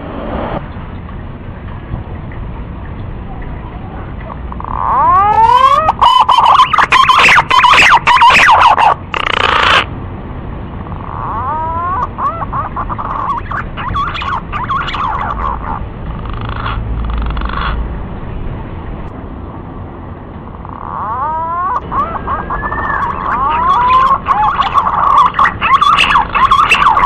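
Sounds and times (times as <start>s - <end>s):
pigeon warbling whistles: 4.6s - 9.9s, 11.0s - 15.8s, 20.6s - 27.0s.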